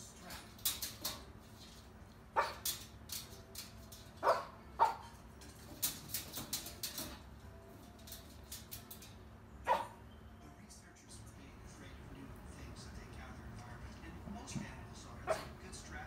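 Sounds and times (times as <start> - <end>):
cockatoo barking: 2.4 - 2.8, 4.2 - 5.2, 9.6 - 10.1, 15.2 - 15.6.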